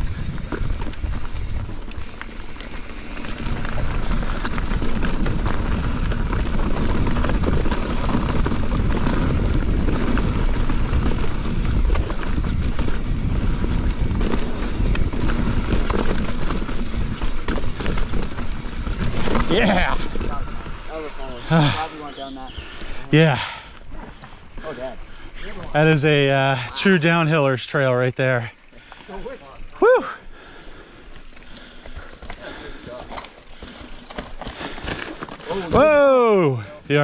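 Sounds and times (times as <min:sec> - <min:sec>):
wind rush on microphone: 0:00.0 - 0:02.2, 0:03.0 - 0:20.9
tyres rolling over rock: 0:00.0 - 0:22.4, 0:31.4 - 0:37.0
bike clattering: 0:00.0 - 0:23.0, 0:30.4 - 0:36.4.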